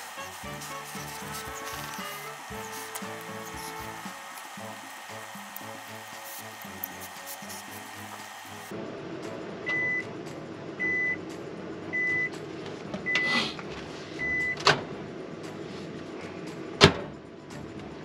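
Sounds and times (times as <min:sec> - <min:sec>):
microwave oven beeps: 0:09.6 - 0:10.1, 0:10.8 - 0:11.2, 0:11.9 - 0:12.4, 0:13.0 - 0:13.4, 0:14.2 - 0:14.7.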